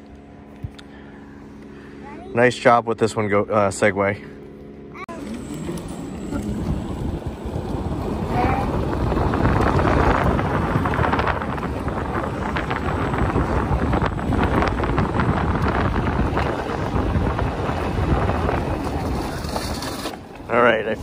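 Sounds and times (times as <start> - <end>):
crackles rolling over sandy pavement: 5.2 - 21.0
wind rushing over microphone: 5.4 - 21.0.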